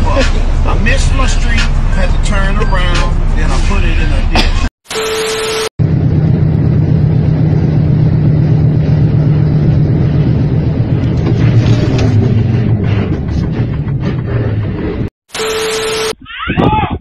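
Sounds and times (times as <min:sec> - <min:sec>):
truck engine droning: 0:05.8 - 0:15.1.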